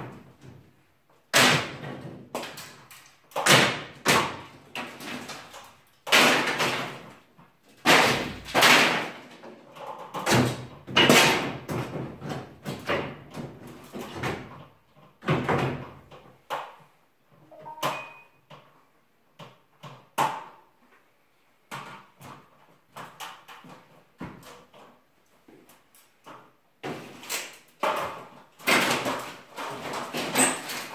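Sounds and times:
ceiling boards crashing down: 1.3s - 14.6s, 15.2s - 16.2s, 26.8s - 30.9s.

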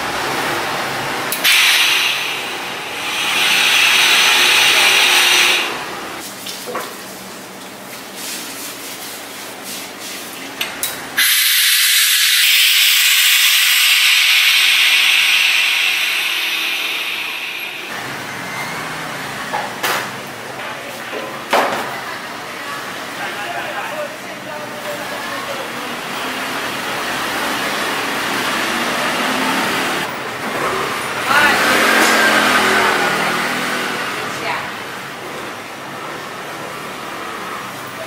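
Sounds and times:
compressed air hissing: 1.3s - 6.2s, 11.2s - 18.1s.

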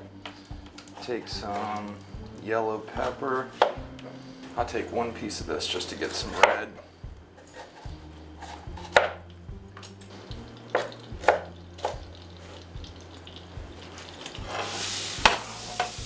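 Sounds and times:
knife cutting on cutting board: 6.0s - 6.6s, 7.4s - 9.2s.

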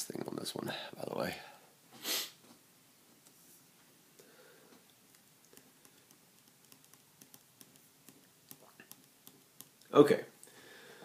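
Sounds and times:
loud breathy noise: 10.5s - 11.0s.

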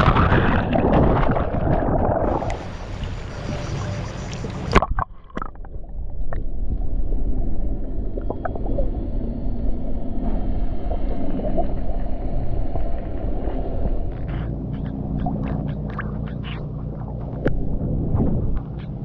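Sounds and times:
splash into water: 0.0s - 5.6s
bubbles gurgling underwater: 0.0s - 9.0s
low underwater rumble: 0.0s - 19.0s.

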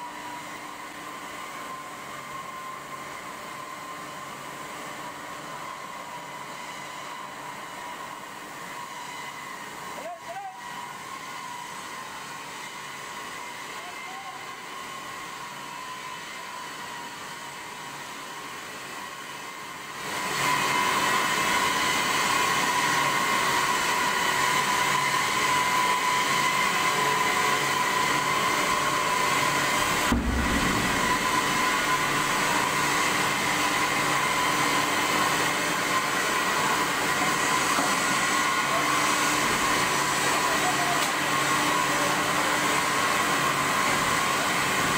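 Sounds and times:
steady machine whine: 14.4s - 42.6s
hydraulic forging press humming: 28.7s - 33.9s.

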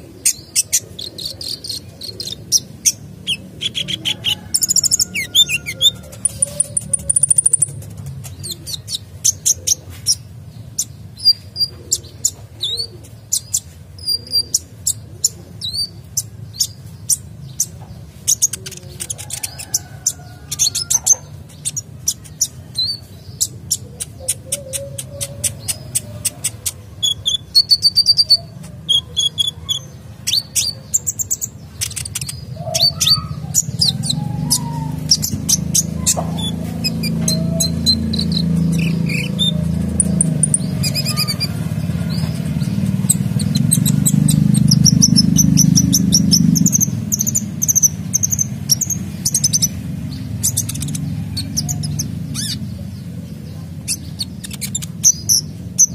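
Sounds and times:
bird singing rapid chirps and trills: 0.0s - 55.9s.

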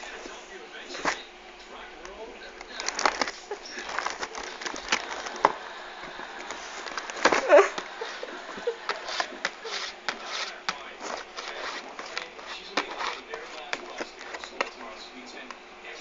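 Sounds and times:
cat scuffling with box: 2.6s - 15.0s
cat scratching cardboard box: 2.6s - 15.5s.

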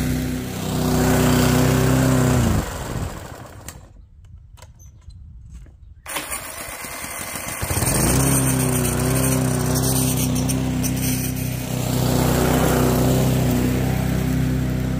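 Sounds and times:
lawn mower engine running: 0.0s - 4.0s, 6.1s - 14.9s
electric starter turning engine: 0.6s - 3.9s, 6.1s - 14.0s.

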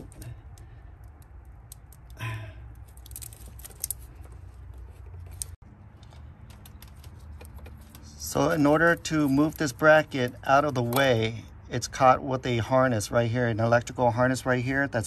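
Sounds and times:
light clicks and rattles of hoses: 0.0s - 11.4s.

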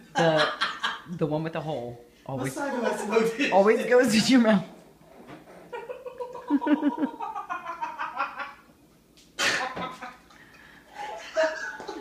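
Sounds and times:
person laughing: 5.8s - 8.6s.

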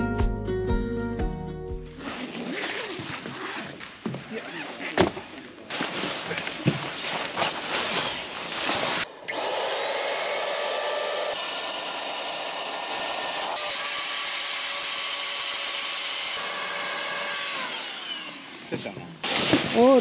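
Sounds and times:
electric air pump running: 8.7s - 20.0s.

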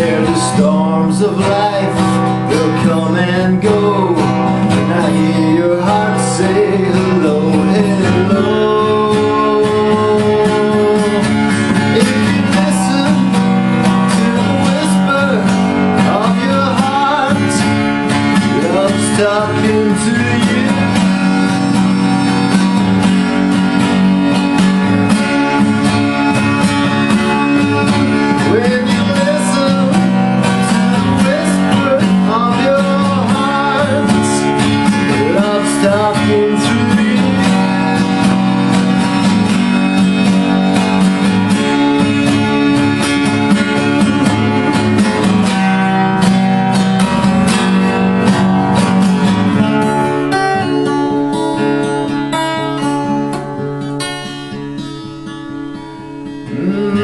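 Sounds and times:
sliding melody line: 0.0s - 53.7s
acoustic guitar strumming: 0.0s - 57.0s.

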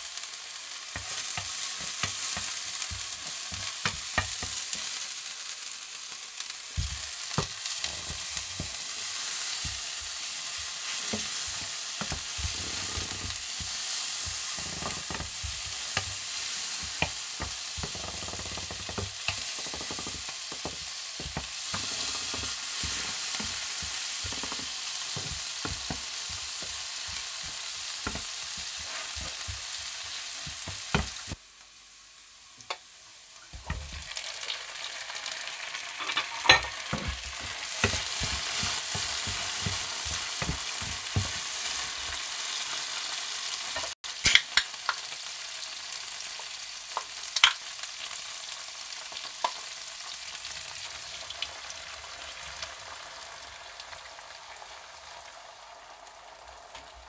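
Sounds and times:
food sizzling in frying pan: 0.0s - 57.0s
spatula scraping pan: 6.8s - 31.4s, 36.0s - 42.2s.

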